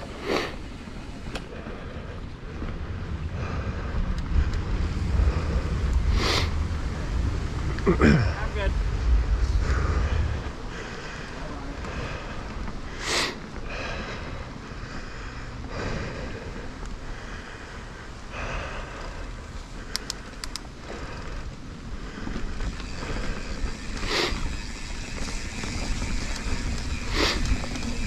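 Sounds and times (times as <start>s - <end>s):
bike tyres rumbling on dirt: 0.0s - 28.0s
wind on microphone: 1.8s - 11.1s.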